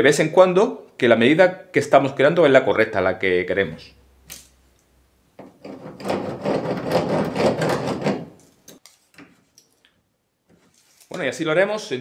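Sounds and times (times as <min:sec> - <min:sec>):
pencil scratching: 0:05.7 - 0:08.2.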